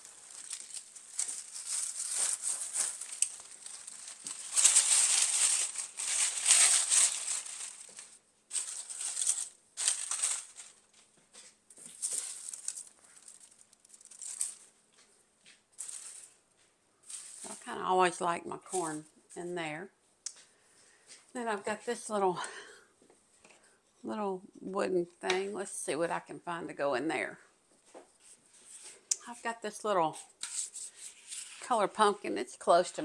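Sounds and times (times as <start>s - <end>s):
dried corn stalks rustling: 0.0s - 15.1s, 15.8s - 16.4s, 17.0s - 19.1s.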